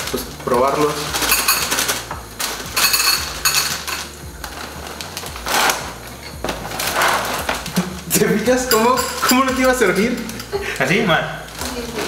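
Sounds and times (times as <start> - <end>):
plastic bag crinkling: 0.0 - 8.4, 9.1 - 12.0
cereal rattling into glass bowl: 0.4 - 5.4.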